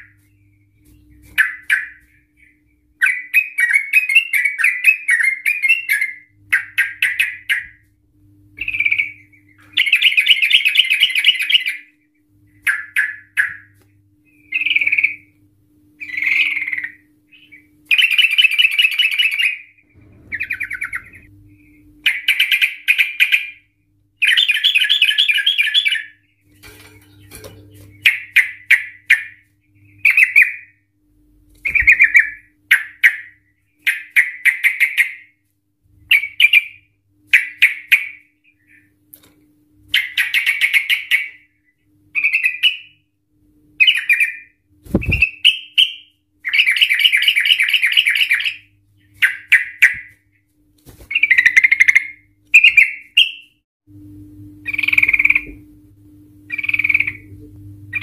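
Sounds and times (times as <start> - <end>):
bulbul singing: 8.5 - 15.4, 16.0 - 30.8, 43.8 - 50.2, 51.1 - 53.6, 54.6 - 55.6, 56.4 - 58.0.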